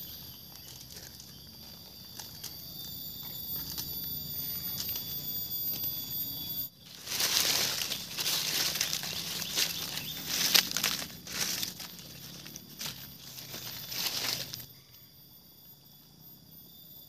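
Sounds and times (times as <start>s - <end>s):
high-pitched insect trilling: 0.0s - 17.0s
rustling and crinkling: 0.1s - 5.9s, 6.9s - 14.7s.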